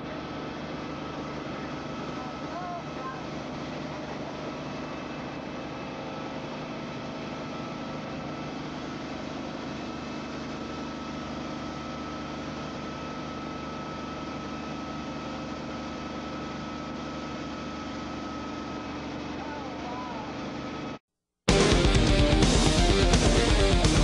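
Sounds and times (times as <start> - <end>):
high whine: 0.0 - 20.7, 21.5 - 24.0
helicopter engine and rotor drone: 0.0 - 24.0.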